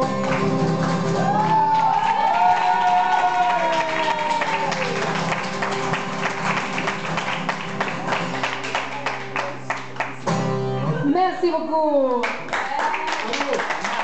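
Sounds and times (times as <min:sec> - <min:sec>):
live band playing: 0:00.0 - 0:01.7.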